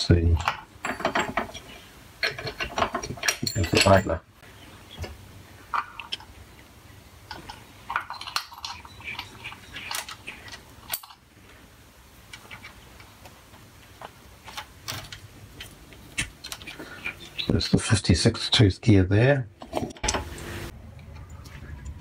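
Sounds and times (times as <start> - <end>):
metal gears clinking: 2.2 - 4.2.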